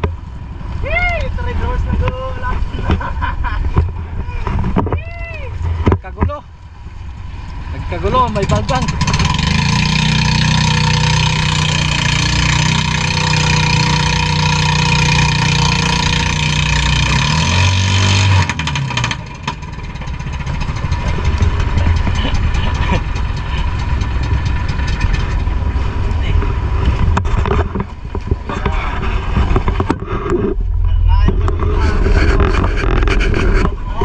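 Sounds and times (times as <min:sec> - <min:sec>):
wind on microphone: 0:00.0 - 0:06.2, 0:20.2 - 0:34.0
boat engine running: 0:00.0 - 0:34.0.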